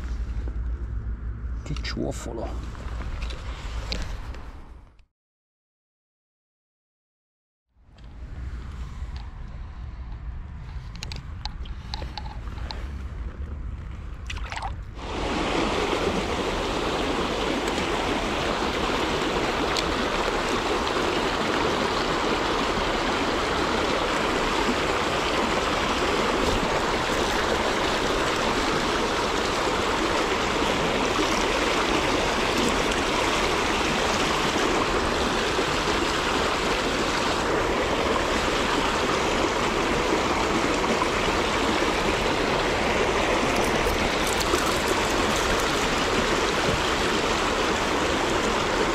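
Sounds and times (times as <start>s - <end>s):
river rapids rushing over rocks: 15.0s - 48.9s.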